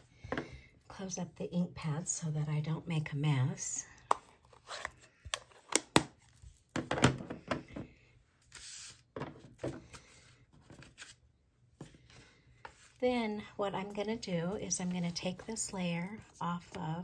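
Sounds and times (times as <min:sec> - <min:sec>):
rustle of craft supplies: 0:08.3 - 0:17.0.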